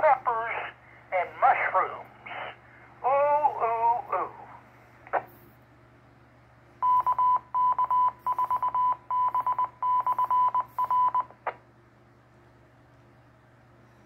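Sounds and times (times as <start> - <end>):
morse code beeps: 6.8 - 11.4.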